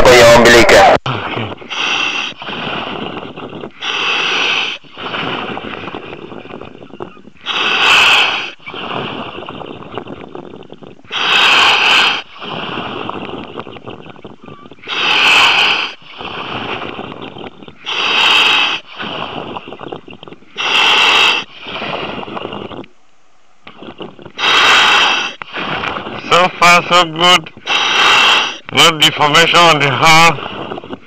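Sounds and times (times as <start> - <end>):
diver breathing through regulator: 1.1 - 22.9, 23.7 - 31.0.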